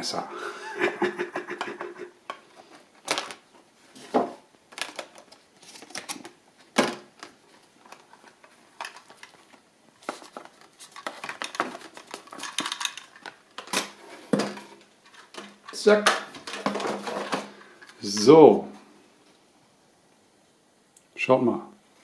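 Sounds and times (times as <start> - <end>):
plastic packaging crackling: 4.7 - 14.0.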